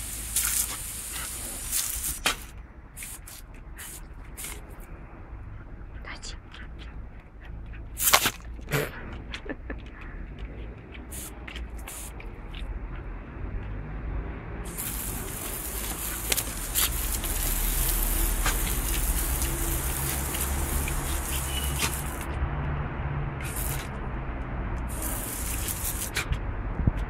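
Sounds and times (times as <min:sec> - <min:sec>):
hose spray splattering on tiles: 0:00.0 - 0:04.8, 0:08.0 - 0:08.4, 0:11.1 - 0:12.6, 0:14.6 - 0:22.4, 0:23.4 - 0:24.0, 0:24.8 - 0:26.4.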